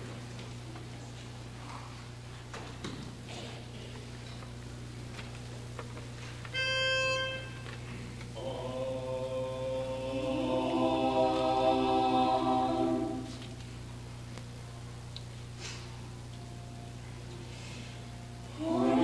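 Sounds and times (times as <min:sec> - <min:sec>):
pitch pipe note: 0:06.5 - 0:07.7
quartet singing a cappella: 0:08.4 - 0:13.5, 0:18.5 - 0:19.0.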